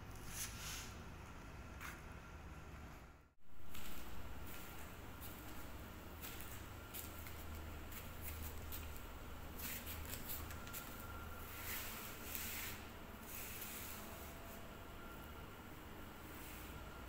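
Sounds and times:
low steady hum: 0:01.0 - 0:17.0
soft scuffs and rustles: 0:03.6 - 0:14.7.

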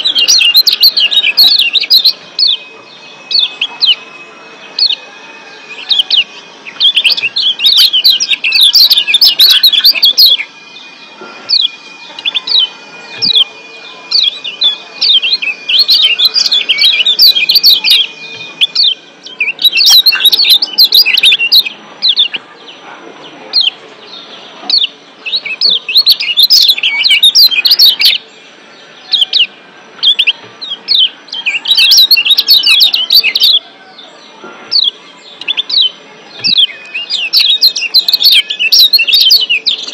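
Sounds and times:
bird sharp chirps: 0:00.0 - 0:22.8.

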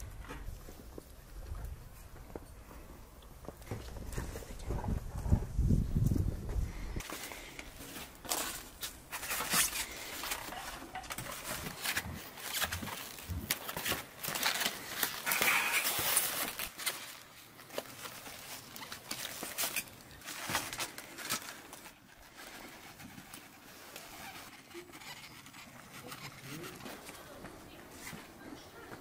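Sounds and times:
rustling: 0:00.0 - 0:29.0.

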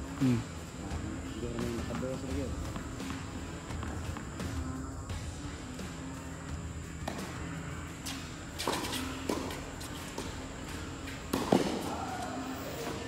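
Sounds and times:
steady low hum: 0:00.0 - 0:13.0
rackets striking tennis ball: 0:02.6 - 0:04.7, 0:07.0 - 0:13.0.

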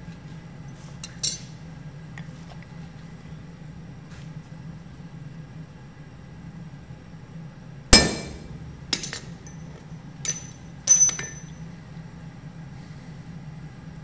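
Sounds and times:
knife blade clanking on anvil: 0:08.0 - 0:09.3
metal clinks and knocks: 0:08.0 - 0:11.6.

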